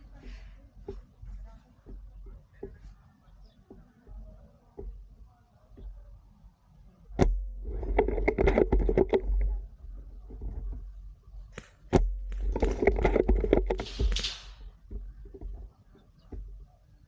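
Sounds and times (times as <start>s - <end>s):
airsoft rifle shot snap: 13.8s - 14.7s.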